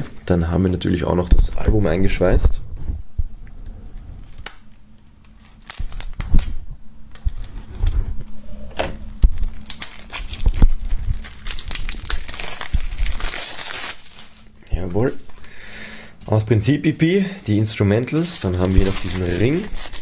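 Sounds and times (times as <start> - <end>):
plastic wrap crinkling: 3.8 - 8.0, 9.0 - 20.0
knife slitting plastic wrap: 9.4 - 14.5, 18.0 - 20.0.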